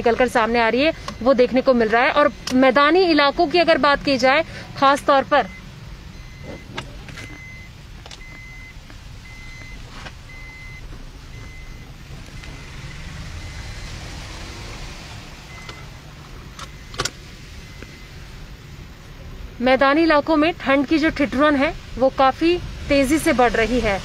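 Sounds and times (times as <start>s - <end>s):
traffic rumble: 0.0s - 24.0s
reversing beeper: 5.3s - 18.2s
tyres hissing on wet road: 12.0s - 16.5s, 17.2s - 19.6s, 20.9s - 24.0s.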